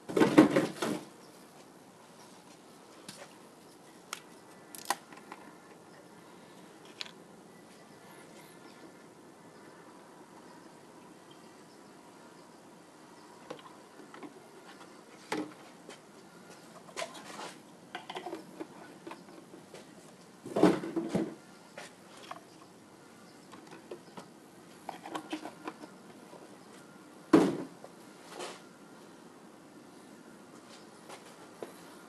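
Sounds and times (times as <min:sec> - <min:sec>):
objects knocking and clunking: 0:00.0 - 0:01.1, 0:16.5 - 0:21.4, 0:27.3 - 0:27.8
loud thud: 0:27.3 - 0:27.7.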